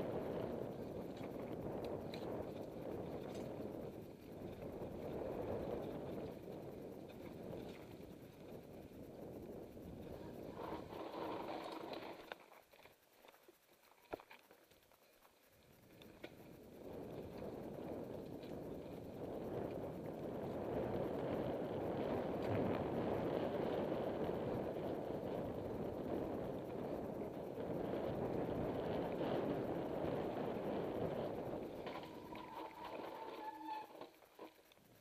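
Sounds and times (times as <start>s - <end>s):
wind rushing over microphone: 0.0s - 12.2s, 16.4s - 33.9s
faint ticks and rattles: 0.0s - 35.0s
tyres rolling on dirt: 10.1s - 15.4s, 28.9s - 35.0s.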